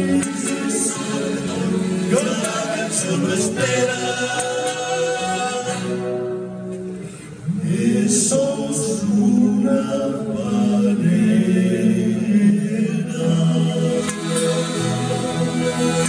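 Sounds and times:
vocal group singing in harmony: 0.0s - 6.4s, 7.4s - 16.0s.

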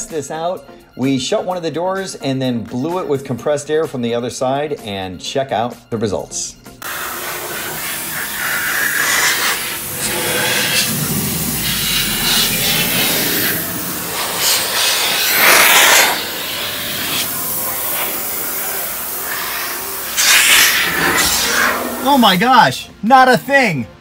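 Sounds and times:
compressed air hissing: 6.8s - 22.4s.

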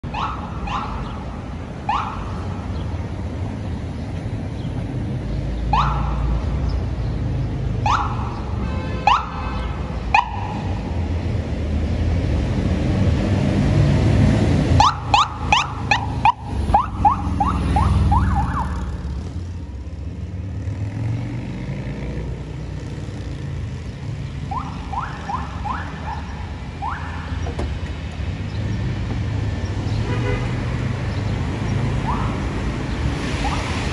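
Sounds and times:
traffic and engines rumbling: 0.0s - 33.9s
motorcycle sirens whooping: 0.1s - 1.1s, 1.9s - 2.4s, 5.7s - 6.3s, 7.8s - 9.5s, 10.1s - 10.7s, 14.8s - 19.2s, 24.5s - 27.4s, 32.0s - 32.5s.

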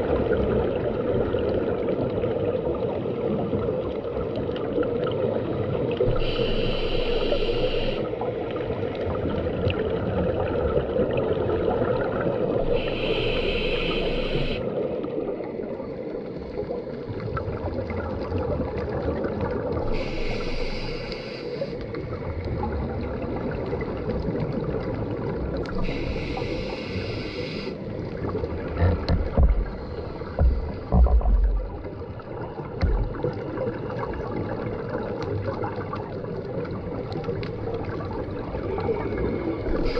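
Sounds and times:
low wash of water: 0.0s - 39.9s
diver breathing through regulator: 6.1s - 8.1s, 12.7s - 14.7s, 19.9s - 21.9s, 25.8s - 27.9s
low thumps: 28.9s - 31.9s, 32.8s - 33.3s.

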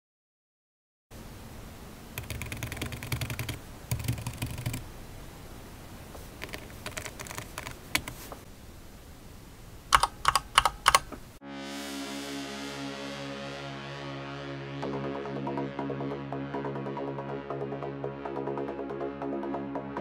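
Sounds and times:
keyboard keys clicking: 2.2s - 4.8s, 6.4s - 8.2s, 9.9s - 11.2s
electronic music: 11.4s - 20.0s.

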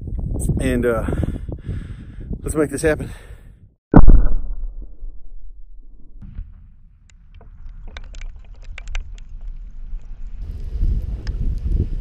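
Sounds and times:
explosion boom: 3.9s - 6.8s.

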